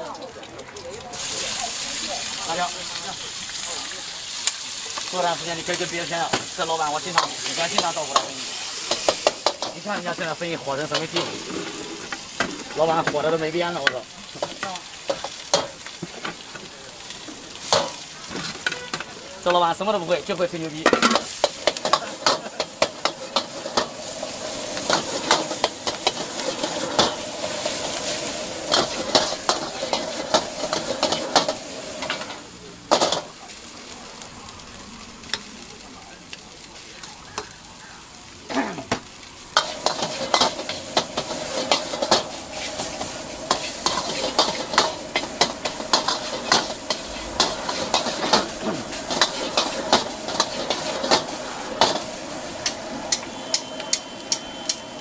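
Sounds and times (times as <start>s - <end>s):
food sizzling in a wok: 0.0s - 55.0s
metal spatula scraping a wok: 10.8s - 12.4s, 20.9s - 33.2s, 39.6s - 54.8s.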